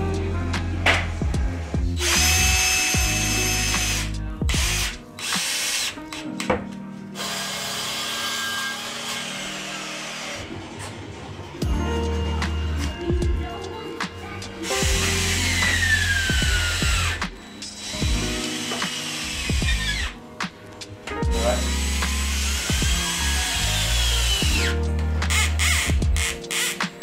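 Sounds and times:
background music: 0.0 - 27.0
power drill drilling into board: 2.0 - 6.0, 7.2 - 10.5, 14.6 - 20.2, 21.4 - 27.0.

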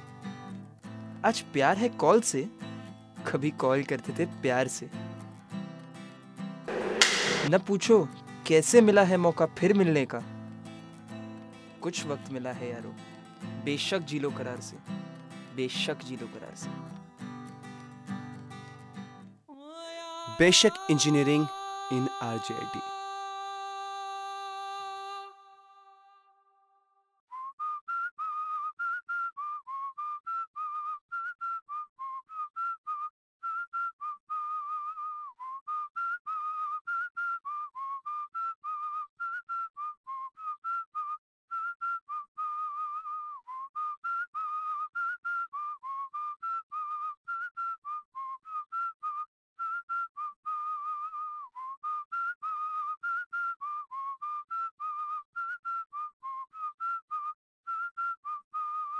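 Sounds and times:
whistled tune: 27.3 - 58.9.

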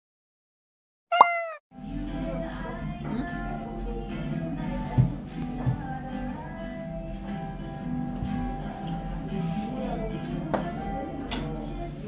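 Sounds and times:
cartoon cat meow effect: 1.1 - 1.6
background music: 1.7 - 12.0.

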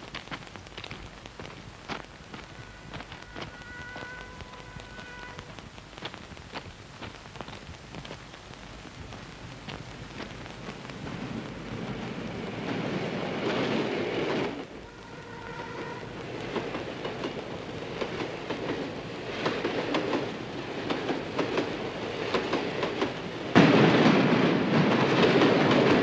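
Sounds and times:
crackles and ticks: 0.0 - 23.6
distant train horn: 2.4 - 5.6, 14.7 - 16.9
approaching train rushing: 9.9 - 26.0.

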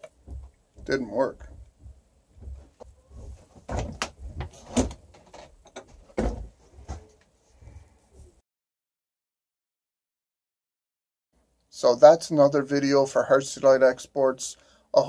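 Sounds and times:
handling knocks and clunks: 0.0 - 7.2.

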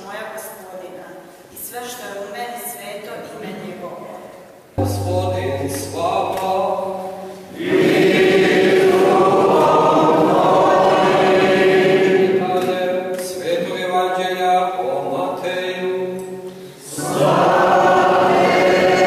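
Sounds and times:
low hum: 4.8 - 7.7
choir and congregation singing: 4.9 - 19.0.

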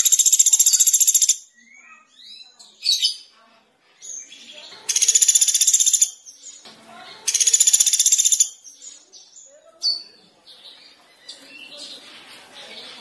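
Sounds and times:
songbird rattling trills: 0.0 - 1.4, 4.9 - 6.2, 7.3 - 8.5
songbird chirps: 0.0 - 13.0.

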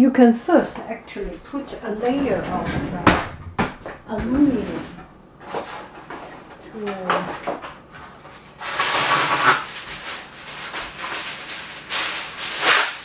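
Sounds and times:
aluminum foil crinkling: 4.6 - 13.0.

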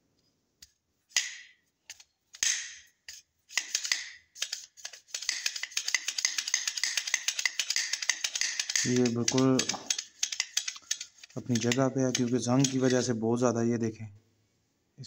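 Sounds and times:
pistol slide metallic clicks: 3.5 - 4.6, 5.2 - 11.1
rattling clicks: 3.6 - 13.1.

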